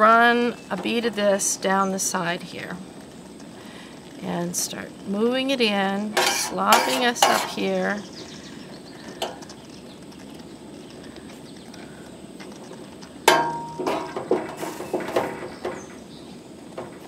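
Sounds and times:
metal spoon scraping steel pan: 0:06.1 - 0:07.7
sharp metallic clank: 0:06.2 - 0:07.6, 0:13.3 - 0:14.2.

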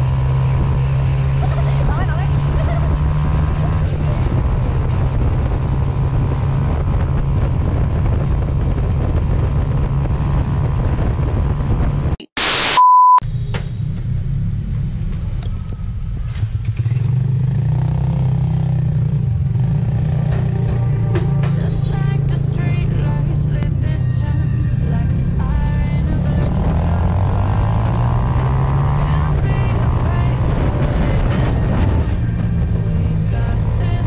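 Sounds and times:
road and wind noise: 0:00.0 - 0:34.0
high beep: 0:12.3 - 0:13.2.

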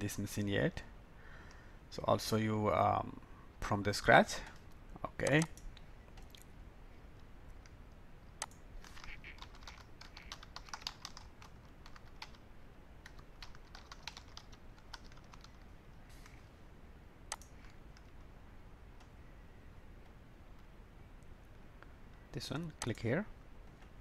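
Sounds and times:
faint keyboard typing: 0:04.4 - 0:06.5, 0:07.2 - 0:16.5, 0:17.3 - 0:18.3, 0:21.8 - 0:24.0.

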